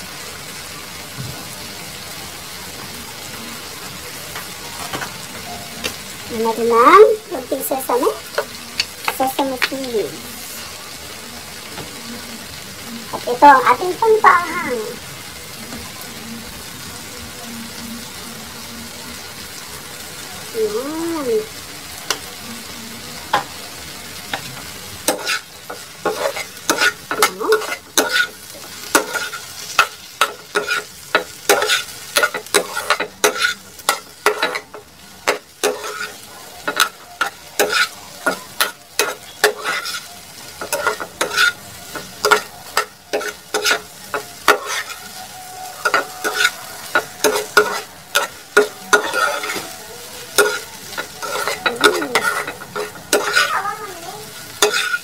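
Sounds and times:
food sizzling: 0:00.0 - 0:55.0
metal spatula scraping a pan: 0:24.4 - 0:53.6, 0:54.4 - 0:55.0.

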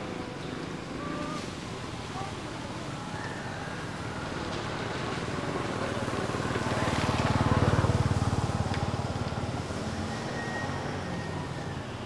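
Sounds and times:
vehicle passing by: 0:03.8 - 0:12.0.

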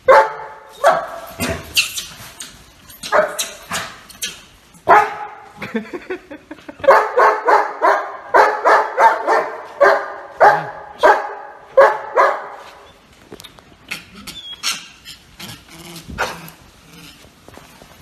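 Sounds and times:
dog barking: 0:00.0 - 0:01.5, 0:03.1 - 0:03.9, 0:04.8 - 0:05.5, 0:06.8 - 0:12.6.

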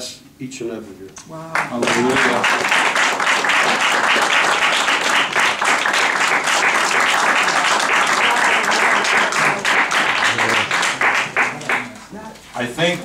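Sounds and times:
audience applauding: 0:01.5 - 0:12.1.

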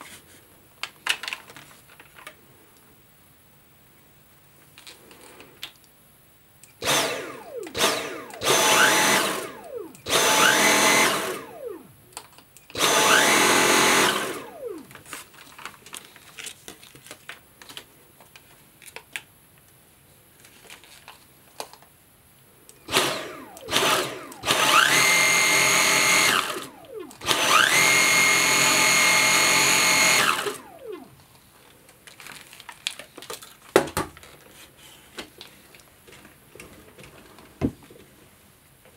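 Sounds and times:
vacuum motor whine: 0:06.8 - 0:12.0, 0:12.7 - 0:15.1, 0:22.8 - 0:31.2.

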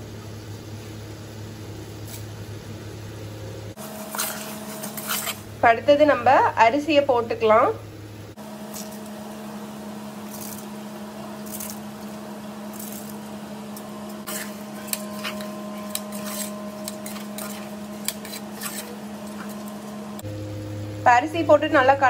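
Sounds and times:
steady low hum: 0:00.0 - 0:22.0
metal ladle scraping a pot: 0:04.0 - 0:05.5, 0:14.3 - 0:19.8.

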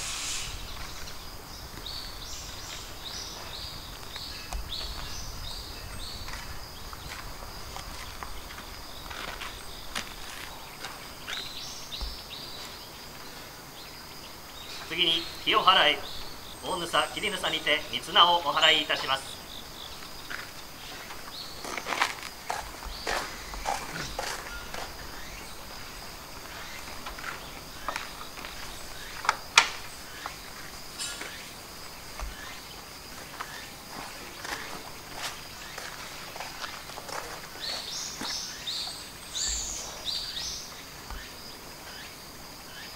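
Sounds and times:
insect trill: 0:00.0 - 0:42.9
footsteps scuffing on gravel: 0:06.0 - 0:12.8, 0:20.0 - 0:29.2, 0:32.1 - 0:39.7.

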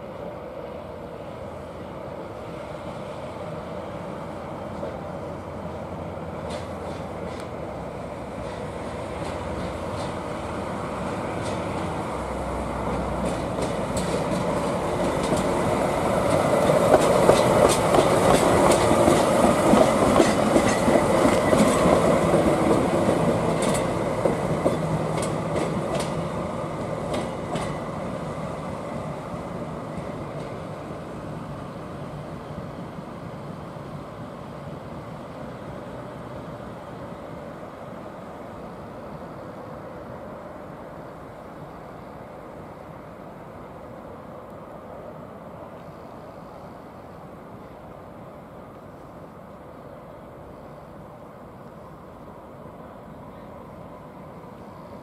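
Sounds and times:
wheels clacking over rail joints: 0:06.4 - 0:07.7, 0:08.3 - 0:31.0.

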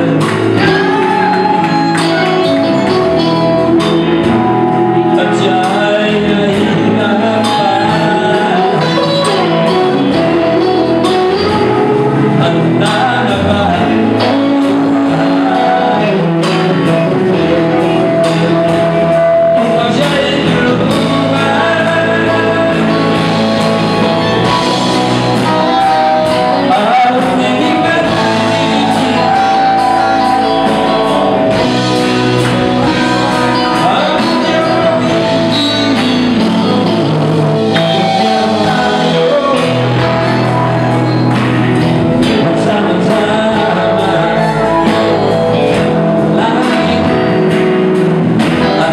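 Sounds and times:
drum kit: 0:00.0 - 0:48.9
electric bass: 0:00.0 - 0:48.9
electric guitars: 0:00.0 - 0:48.9
person singing: 0:00.0 - 0:48.9.

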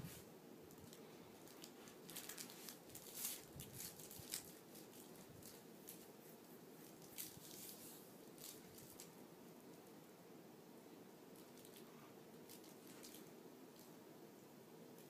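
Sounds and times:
puppy rustling on blankets: 0:00.0 - 0:09.2, 0:11.4 - 0:14.0.

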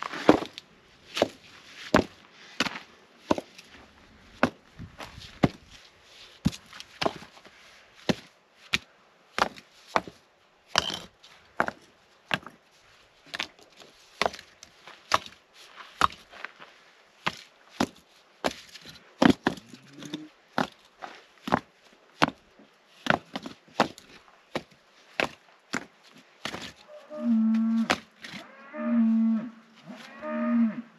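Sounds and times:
rocks knocking together: 0:17.2 - 0:22.4.

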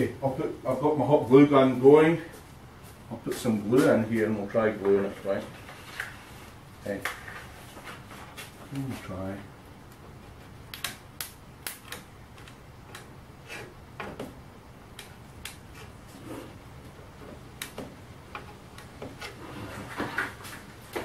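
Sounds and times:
sharp clicks and light taps: 0:10.7 - 0:13.1.

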